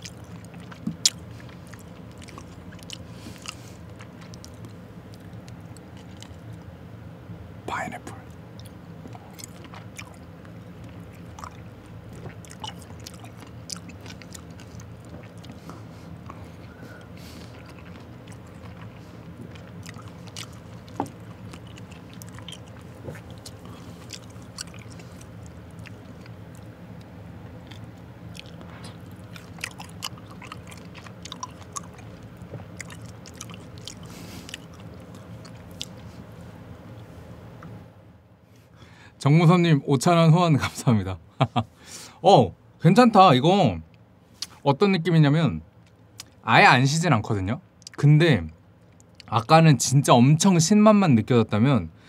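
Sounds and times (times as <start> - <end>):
man chewing with wet crunches: 0.0 - 6.8, 8.1 - 37.8, 44.4 - 44.6, 45.8 - 46.4, 48.7 - 49.5
steady low hum: 0.0 - 52.0.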